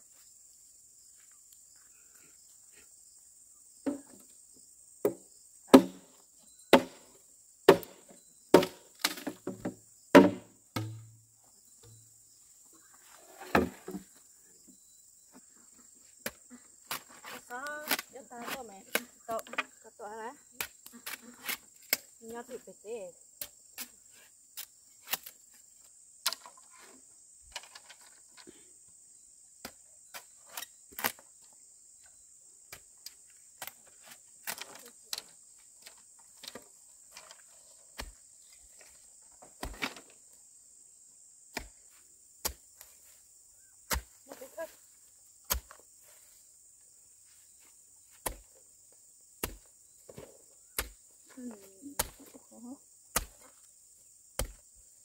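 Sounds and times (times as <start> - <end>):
tool knocking on wood: 9.4 - 11.1.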